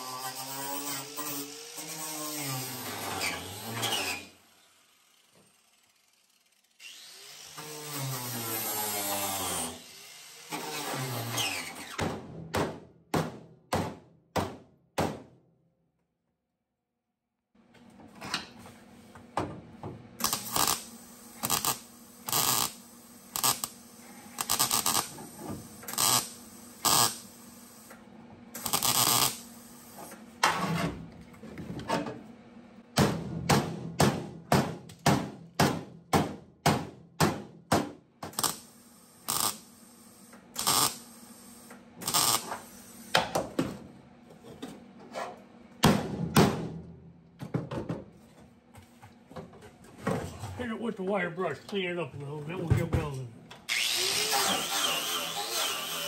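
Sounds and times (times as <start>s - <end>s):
short sharp bursts on sheet steel: 20.2s - 27.9s, 28.6s - 30.1s, 38.3s - 43.1s.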